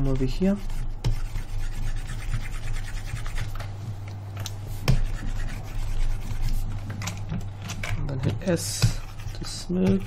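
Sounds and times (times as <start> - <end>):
scratchy rubbing of stylus: 0.0 - 3.6, 4.7 - 6.8
low electrical hum: 0.0 - 10.0.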